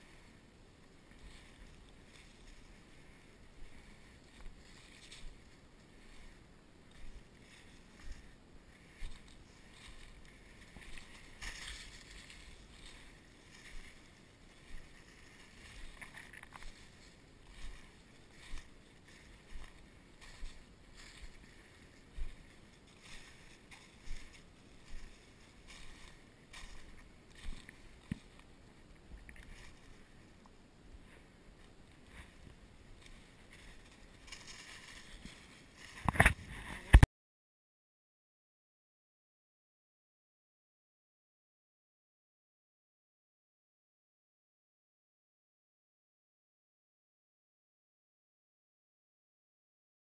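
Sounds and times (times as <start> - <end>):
footsteps crunching through dry leaves: 0.0 - 36.7.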